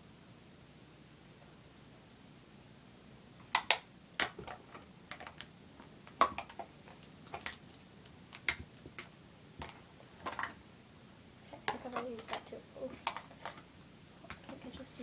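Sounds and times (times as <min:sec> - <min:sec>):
plastic makeup cases clicking: 0:03.4 - 0:05.5, 0:06.1 - 0:07.7, 0:08.3 - 0:10.6, 0:11.6 - 0:13.6.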